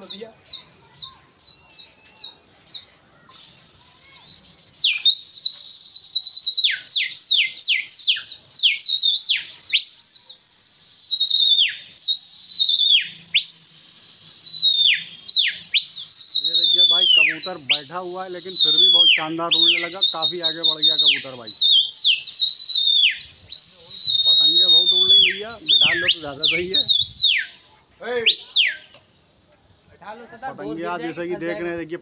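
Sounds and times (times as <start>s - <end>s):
loud shrill human whistling: 3.3s - 27.6s, 28.2s - 29.0s.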